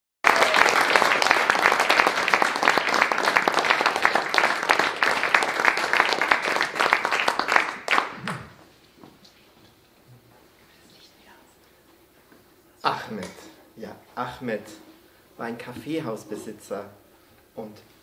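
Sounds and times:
audience applauding: 0.2s - 8.6s.

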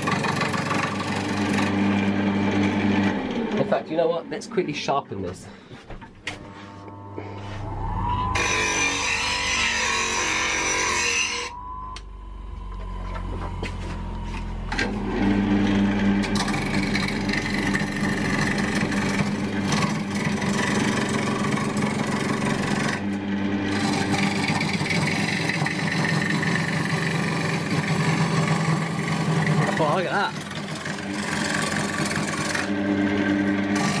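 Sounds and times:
chisel scraping wood: 0.0s - 1.7s, 16.2s - 23.1s, 23.7s - 32.8s, 33.7s - 34.0s
lathe motor hum: 0.0s - 34.0s.

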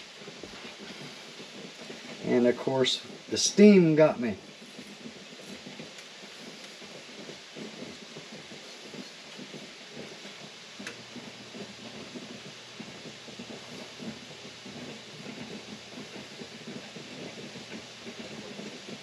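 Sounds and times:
jam bubbling in a pot: 0.0s - 19.0s.

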